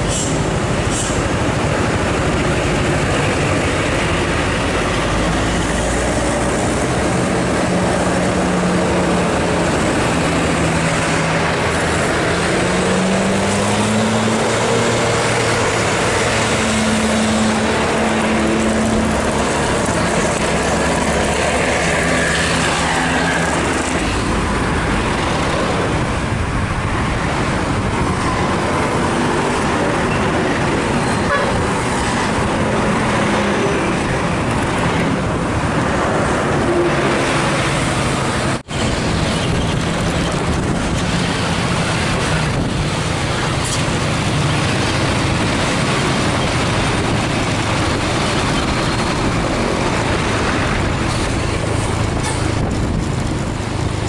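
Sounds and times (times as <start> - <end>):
diesel coach engines straining uphill: 0.0 - 54.0
heavy road noise: 0.0 - 54.0.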